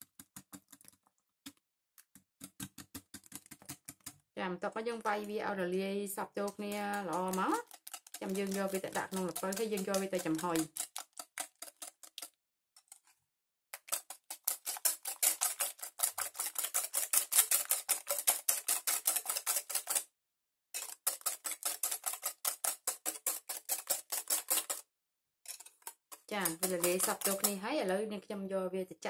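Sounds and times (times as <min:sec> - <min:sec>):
whisk clicking on glass bowl: 0:06.2 - 0:12.3, 0:13.8 - 0:20.1, 0:20.8 - 0:24.8, 0:26.1 - 0:27.7.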